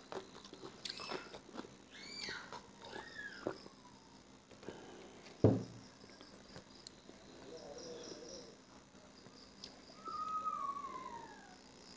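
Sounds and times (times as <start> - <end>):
faint high chirping: 0.8 - 11.9
sudden low thump: 5.4 - 5.8.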